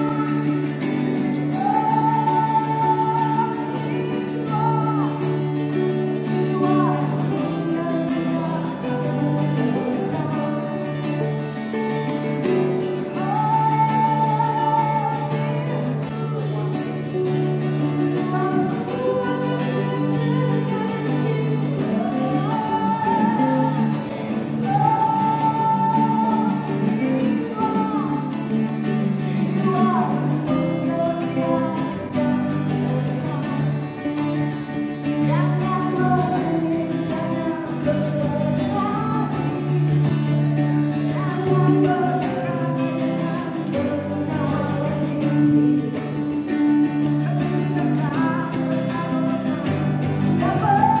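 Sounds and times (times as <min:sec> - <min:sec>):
song with singing voice: 0:00.0 - 0:51.0.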